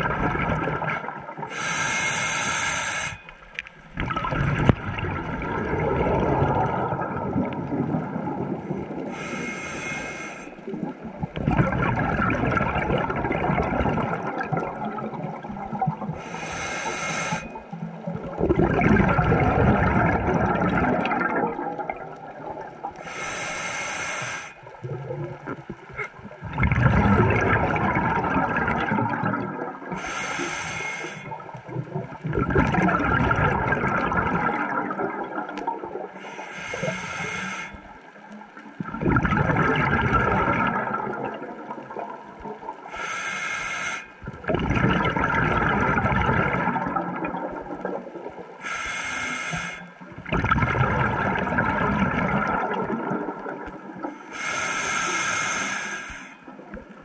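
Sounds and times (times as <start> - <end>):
diver breathing through regulator: 1.5 - 3.3, 9.1 - 10.6, 16.2 - 17.6, 23.0 - 24.7, 29.9 - 31.4, 36.2 - 37.9, 42.9 - 44.2, 48.6 - 50.0, 54.0 - 56.5.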